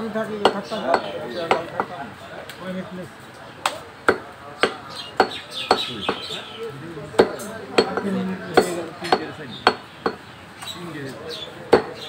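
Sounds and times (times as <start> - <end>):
cleaver chopping meat on wood: 3.6 - 6.4, 7.2 - 10.2, 11.7 - 12.0.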